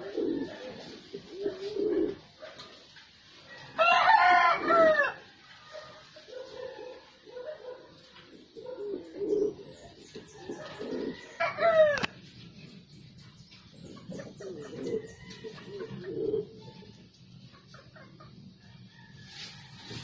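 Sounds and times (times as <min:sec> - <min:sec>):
pigeons cooing: 0:00.0 - 0:02.9, 0:03.5 - 0:18.4.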